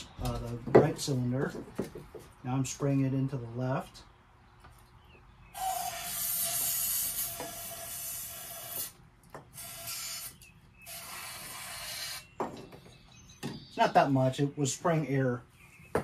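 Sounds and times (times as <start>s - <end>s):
aerosol spray can hissing: 5.6s - 8.9s.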